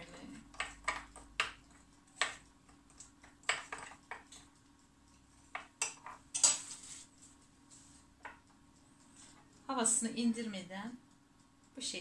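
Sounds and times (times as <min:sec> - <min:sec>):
brush stirring egg in bowl: 0:00.4 - 0:08.5
brush knocking against bowl: 0:08.2 - 0:08.4.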